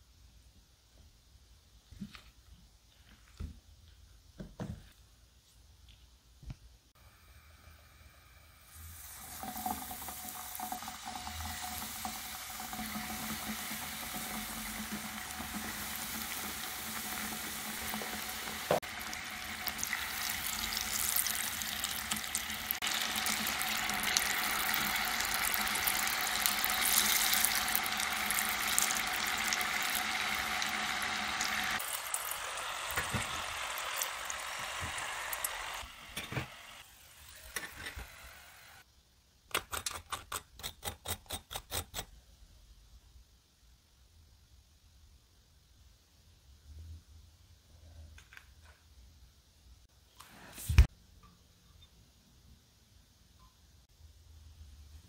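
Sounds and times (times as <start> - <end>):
oil sizzling and crackling: 8.7 - 38.8.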